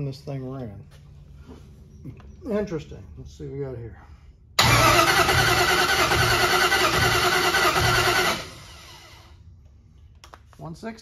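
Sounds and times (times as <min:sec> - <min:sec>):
engine cranking on starter: 0:04.6 - 0:09.1.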